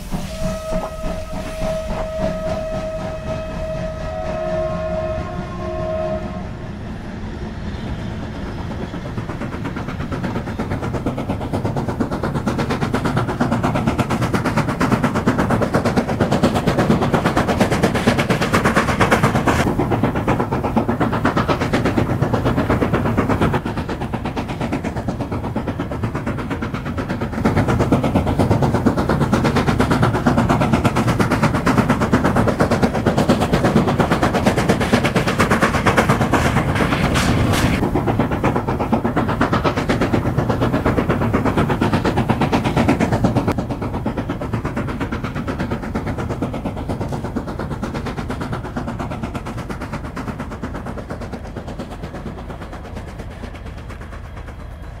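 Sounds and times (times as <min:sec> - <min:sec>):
steam locomotive exhaust chuffing: 0:00.0 - 0:55.0.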